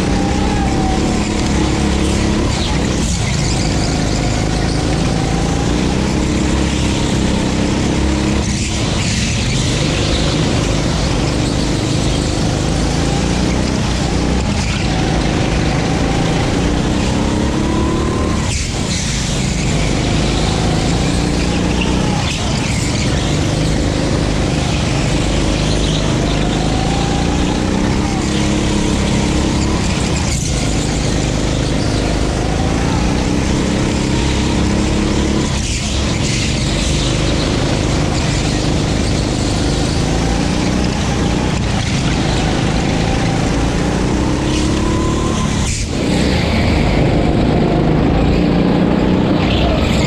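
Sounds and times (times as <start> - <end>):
go-kart engine revving: 0.0 - 50.0.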